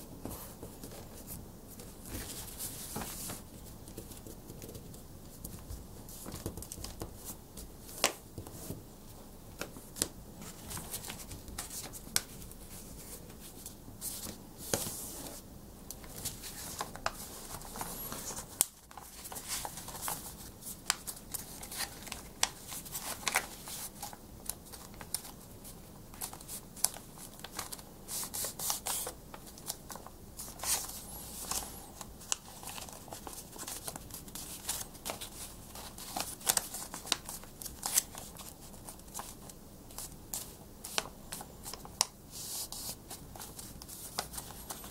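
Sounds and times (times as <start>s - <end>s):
paper rustling and crinkling: 0.2s - 8.8s, 9.6s - 44.9s
paper creasing crackles: 9.6s - 44.9s.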